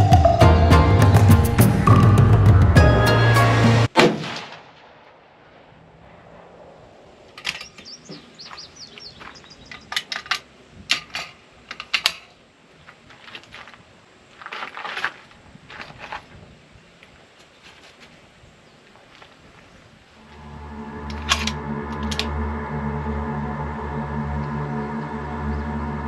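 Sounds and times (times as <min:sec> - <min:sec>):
background music: 0:00.0 - 0:03.9, 0:20.3 - 0:26.0
bird chirping: 0:07.4 - 0:10.1.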